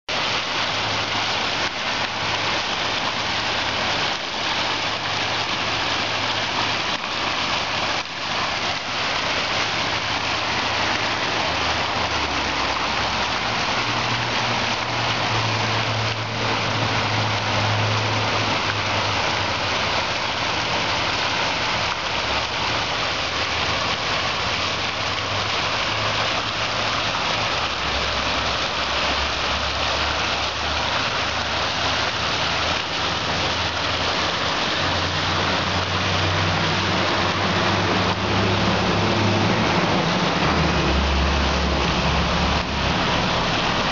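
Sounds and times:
fountain water splashing: 0.0s - 43.9s.

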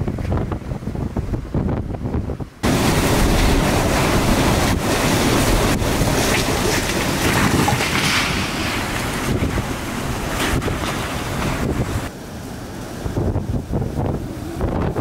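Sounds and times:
strong wind blowing: 0.0s - 15.0s
wind buffeting microphone: 0.0s - 15.0s.

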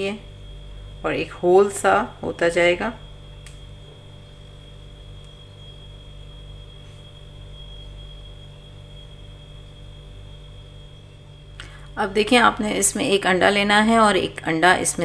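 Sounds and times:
high-pitched whine: 0.0s - 15.0s
low electrical hum: 0.0s - 15.0s
small click: 3.4s - 3.6s.

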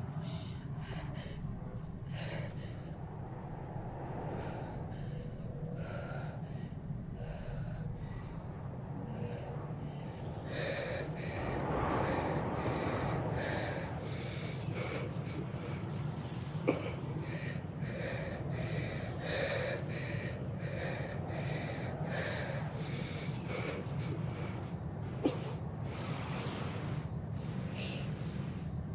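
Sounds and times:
low steady hum: 0.0s - 28.9s
woman breathing hard: 0.0s - 28.9s.

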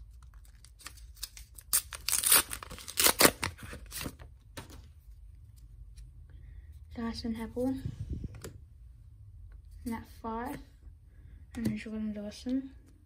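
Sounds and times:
card pack wrapper tearing: 0.1s - 4.1s.

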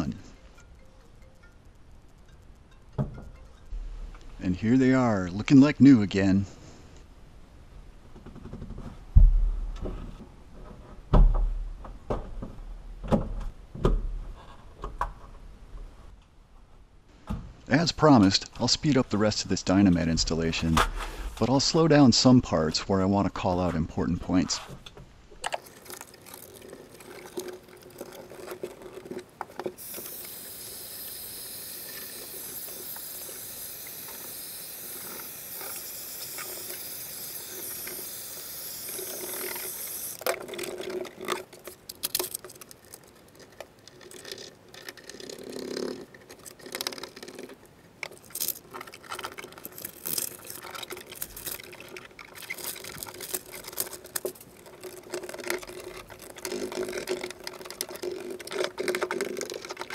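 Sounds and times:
heat gun hissing: 29.8s - 40.2s
foil mat crinkling and rustling: 48.1s - 59.9s.

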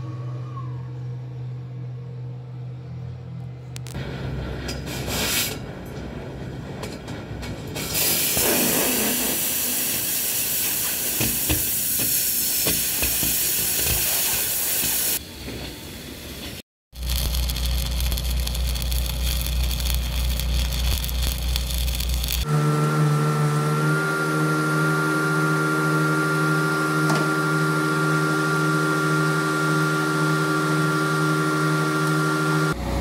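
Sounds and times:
arc welding crackling hiss: 7.8s - 15.2s, 16.4s - 22.5s.

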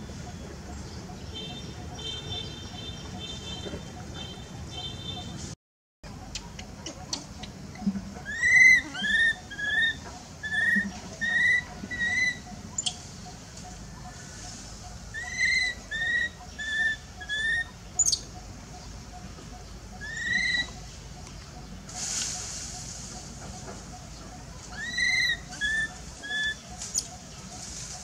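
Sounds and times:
baby monkey squeaky cries: 8.3s - 13.0s, 15.2s - 18.2s, 20.0s - 20.8s, 24.7s - 27.1s.

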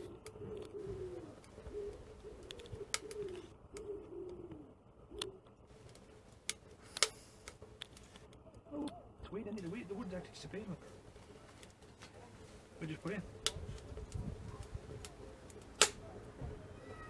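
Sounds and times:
pigeon cooing: 0.0s - 5.8s
sharp clicks: 13.4s - 16.0s.

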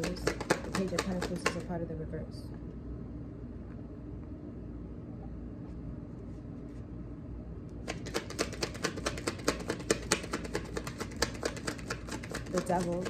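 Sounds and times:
low steady hum: 0.0s - 13.0s
cards being shuffled: 7.9s - 13.0s.

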